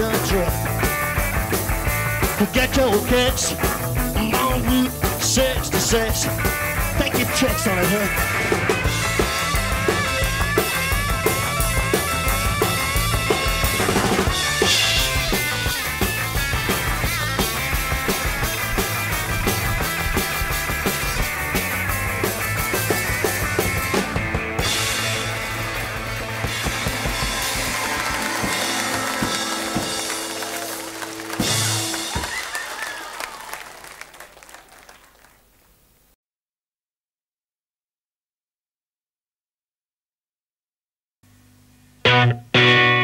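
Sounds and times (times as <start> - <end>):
rock band playing: 0.0 - 33.2, 42.0 - 43.0.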